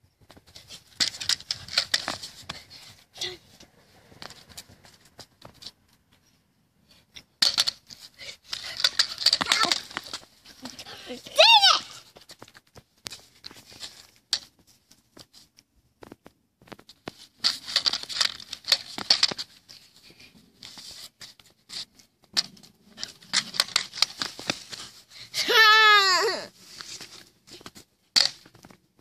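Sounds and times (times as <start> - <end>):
pogo stick clicking on asphalt: 0.4 - 3.3, 7.2 - 13.6, 16.7 - 19.7, 21.8 - 25.6
girl squealing: 11.4 - 12.0, 25.4 - 26.5.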